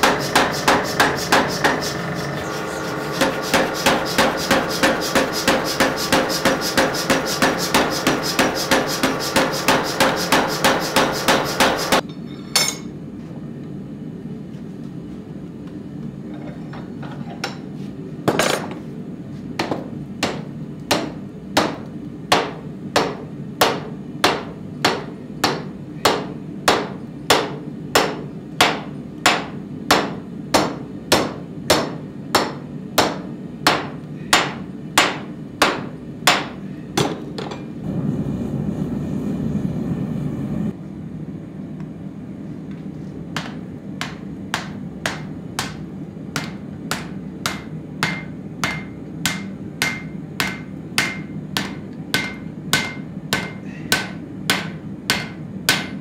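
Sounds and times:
hand hammer striking steel: 0:00.0 - 0:02.0, 0:03.1 - 0:12.9, 0:19.6 - 0:37.6, 0:43.4 - 0:45.8, 0:46.4 - 0:56.0
power hammer striking steel: 0:00.0 - 0:12.9, 0:19.6 - 0:37.6, 0:43.4 - 0:45.8, 0:46.4 - 0:56.0
low hum: 0:37.8 - 0:41.6.

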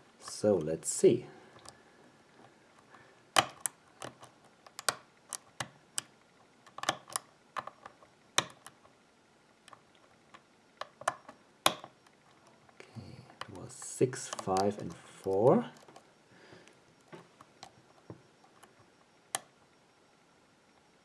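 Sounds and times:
lock pick clicking: 0:03.3 - 0:08.8, 0:09.7 - 0:12.2.

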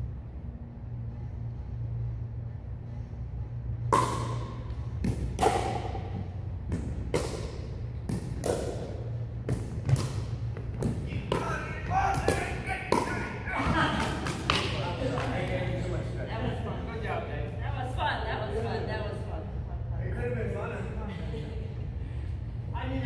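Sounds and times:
steady low hum: 0:00.0 - 0:23.0
ball bouncing on wooden floor: 0:05.0 - 0:14.6
paddles striking plastic ball: 0:06.7 - 0:13.3.

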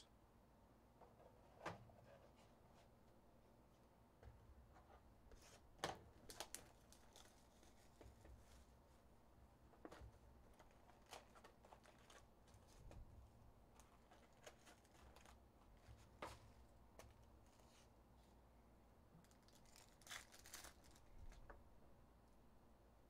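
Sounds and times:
foil packs rustling and crinkling: 0:06.2 - 0:08.5, 0:10.5 - 0:12.8, 0:13.8 - 0:16.2, 0:19.2 - 0:21.4.

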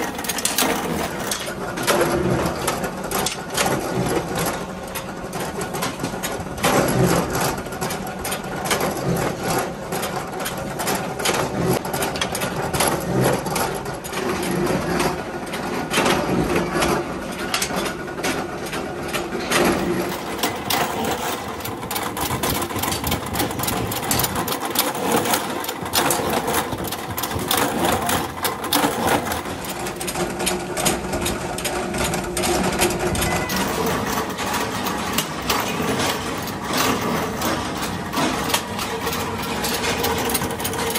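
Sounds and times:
forging press clattering: 0:12.1 - 0:40.9.

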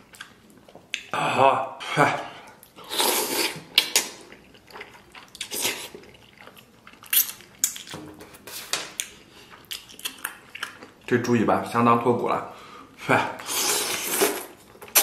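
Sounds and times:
wet chewing and lip-smacking: 0:00.0 - 0:01.1, 0:02.5 - 0:11.1.

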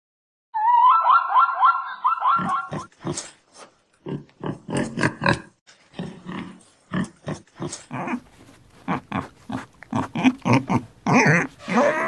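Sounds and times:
pigs grunting: 0:04.0 - 0:08.2, 0:08.8 - 0:12.0.

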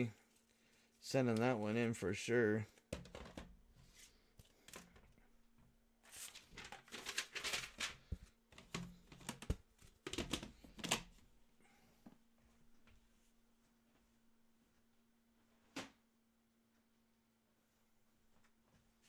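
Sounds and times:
clicks and plastic rustles: 0:06.1 - 0:11.2.

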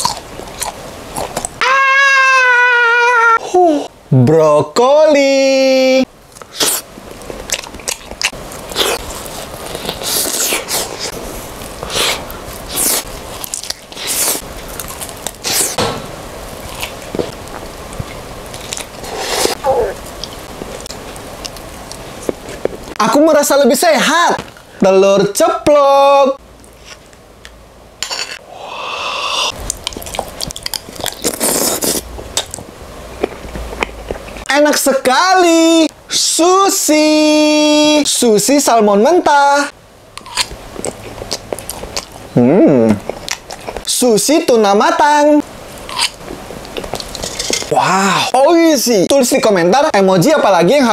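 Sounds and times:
person biting and chewing: 0:00.0 - 0:01.6, 0:06.4 - 0:15.9, 0:16.6 - 0:22.9, 0:29.2 - 0:34.4, 0:40.2 - 0:43.9, 0:45.8 - 0:47.8.

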